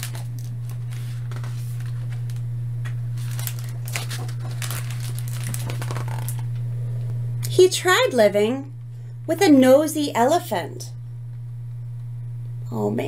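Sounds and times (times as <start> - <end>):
book pages turning: 0.0 - 2.5, 3.1 - 6.5
steady low hum: 0.0 - 13.0.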